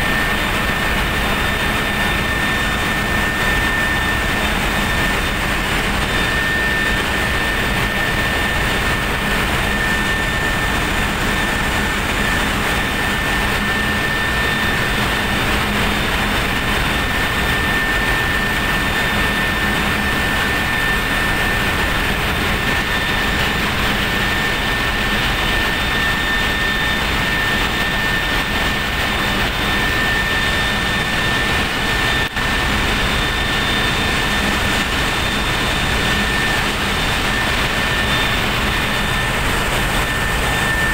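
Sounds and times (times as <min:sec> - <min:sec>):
constant high whine: 0:00.0 - 0:40.9
running machinery: 0:00.0 - 0:40.9.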